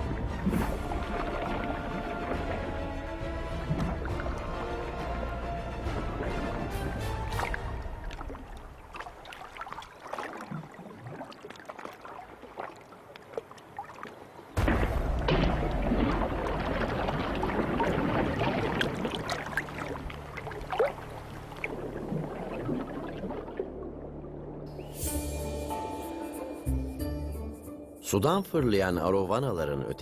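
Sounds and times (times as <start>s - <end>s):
water dripping: 0.0s - 25.1s
fish splashing in water: 5.8s - 24.1s.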